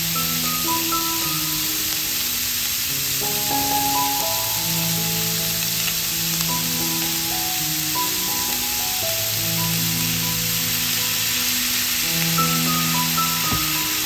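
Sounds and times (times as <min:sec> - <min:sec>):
meat sizzling in a frying pan: 0:00.0 - 0:14.0
soft background music: 0:00.0 - 0:14.0.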